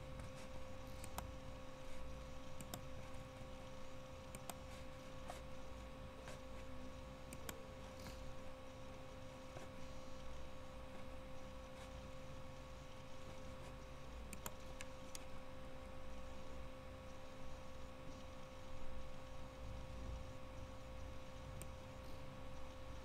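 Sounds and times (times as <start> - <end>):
steady hum: 0.0 - 23.0
computer mouse clicks: 0.2 - 6.7, 7.3 - 8.5, 13.2 - 15.4, 21.6 - 21.8.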